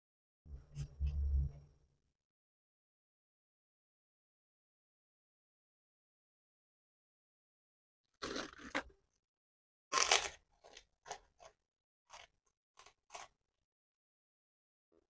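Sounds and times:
chewing crunches: 8.2 - 8.9, 9.9 - 13.3
cracker crunching: 8.2 - 9.0, 9.9 - 13.4.

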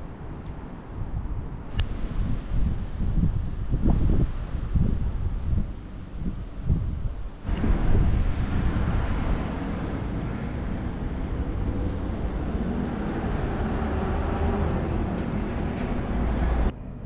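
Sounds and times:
engine rumbling: 1.7 - 17.0.

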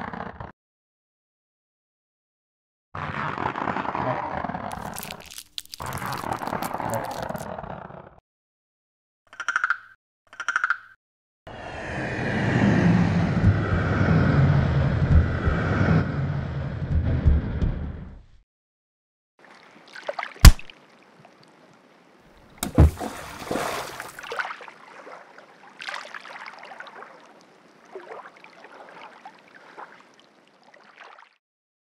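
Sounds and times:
water sloshing and trickling: 4.7 - 7.4, 19.4 - 31.4
splash: 19.4 - 21.4, 22.6 - 31.4.

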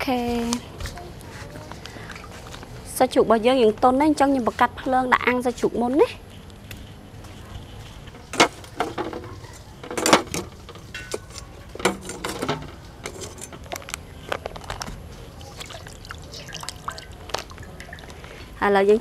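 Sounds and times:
low steady background noise: 0.0 - 19.0
cooking gear clinking: 8.3 - 15.6.

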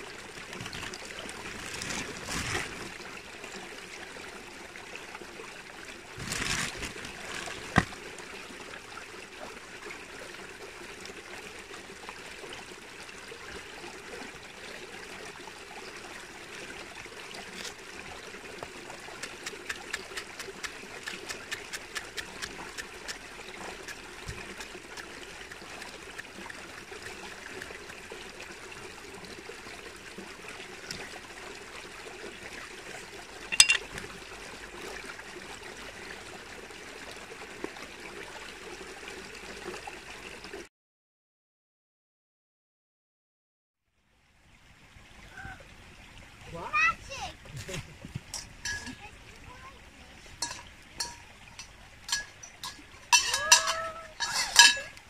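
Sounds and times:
rustle: 0.0 - 2.9, 6.2 - 8.0, 45.0 - 55.0
trickling rushing water: 0.0 - 40.7, 44.0 - 55.0.

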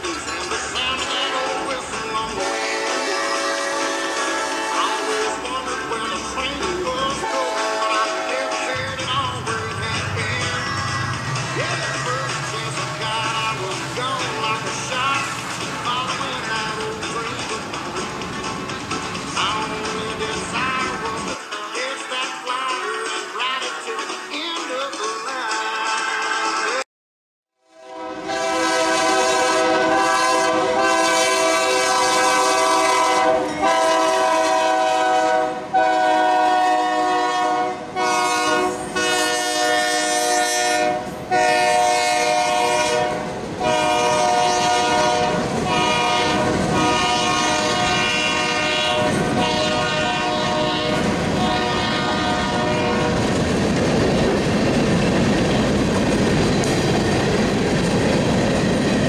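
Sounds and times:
train cars rumbling and clattering: 0.0 - 21.4, 28.2 - 59.0
locomotive air horn blasts: 2.4 - 5.5, 7.1 - 9.0, 27.6 - 53.2.

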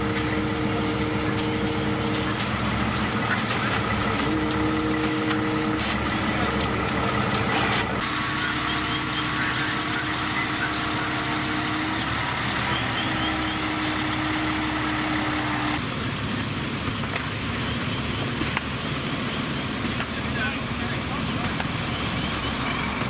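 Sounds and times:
steady whine: 0.0 - 15.8
diesel engine running: 0.0 - 23.0.

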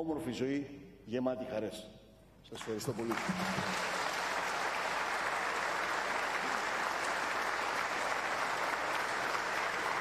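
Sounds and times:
audience applause: 2.6 - 10.0.

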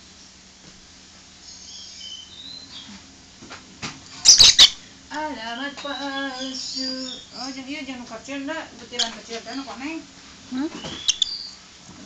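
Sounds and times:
bird chirping and squawking: 4.2 - 4.8, 5.6 - 7.6, 8.9 - 9.7, 10.8 - 11.6.

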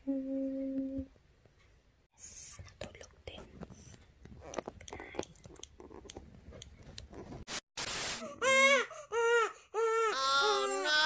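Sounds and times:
burst of static-like noise: 7.5 - 8.2
infant crying: 8.3 - 11.0.

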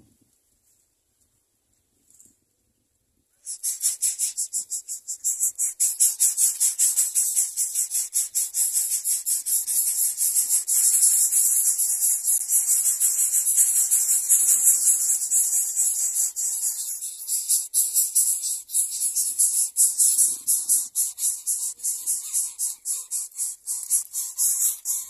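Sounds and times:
nestlings begging calls: 3.4 - 25.0.

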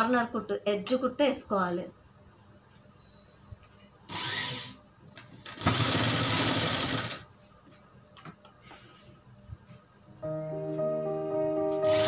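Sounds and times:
sewing machine stitching fabric: 5.5 - 7.2.

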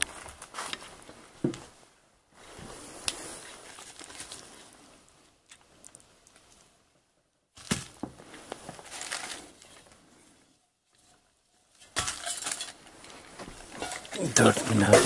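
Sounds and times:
shuffling and rustling: 0.0 - 5.3, 7.8 - 10.4.

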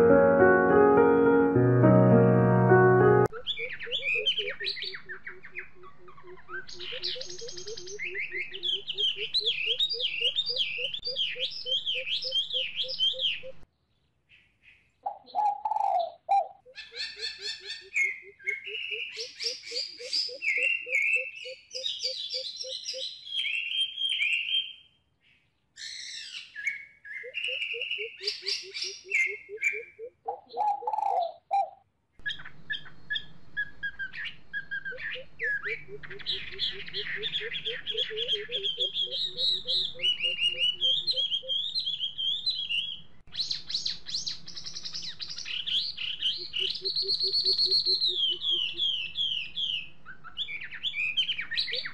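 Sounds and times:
bird deep hooting call: 3.3 - 13.6, 15.1 - 23.0, 27.2 - 43.0, 45.4 - 51.9
small birds chirping: 3.3 - 31.5, 32.2 - 51.9.

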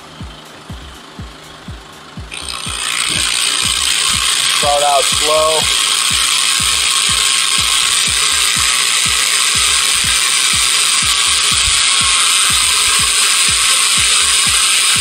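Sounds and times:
low thuds: 0.0 - 4.5
electric drill grinding metal: 2.3 - 15.0.

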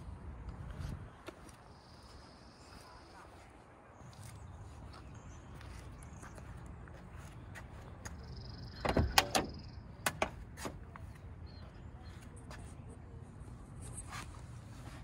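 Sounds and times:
car door latch clicks: 8.8 - 10.8.

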